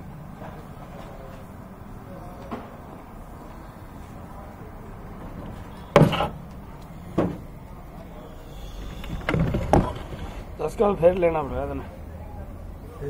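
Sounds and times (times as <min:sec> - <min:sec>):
steady background noise: 0:00.0 - 0:13.0
loud knocks: 0:05.9 - 0:06.4, 0:07.1 - 0:07.5, 0:08.8 - 0:10.4.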